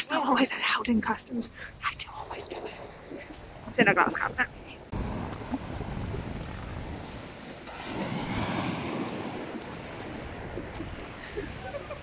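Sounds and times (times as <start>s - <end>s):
wind buffeting microphone: 0.8s - 12.0s
waves washing over sand: 4.5s - 12.0s.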